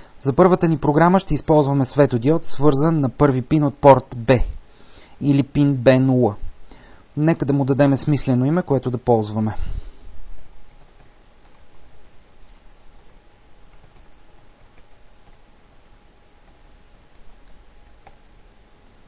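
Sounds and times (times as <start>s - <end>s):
low hiss: 0.0s - 19.0s
keyboard keys clicking: 10.8s - 11.8s, 13.0s - 15.4s.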